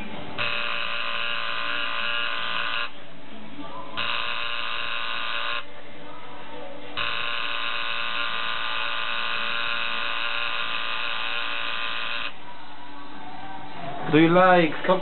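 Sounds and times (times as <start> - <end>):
tattoo machine buzzing: 0.4 - 3.0, 4.0 - 5.7, 7.0 - 12.4.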